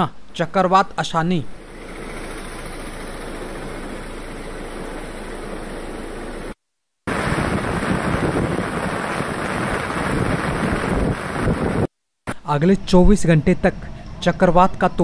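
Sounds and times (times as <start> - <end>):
heavy rain pouring: 7.1 - 11.9
wind buffeting microphone: 7.1 - 11.9.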